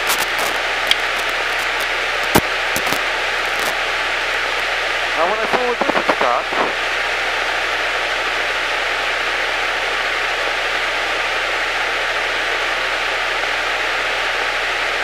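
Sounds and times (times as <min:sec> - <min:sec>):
radio static hiss: 0:00.0 - 0:09.3.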